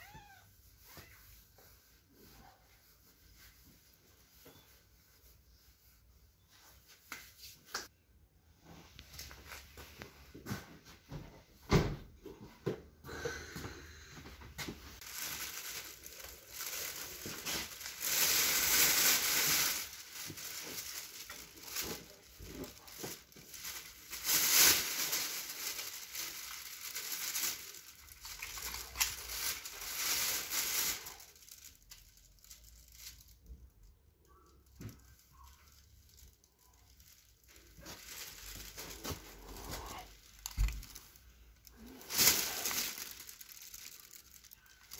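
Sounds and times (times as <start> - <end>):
plastic bag rustling: 14.8 - 44.9.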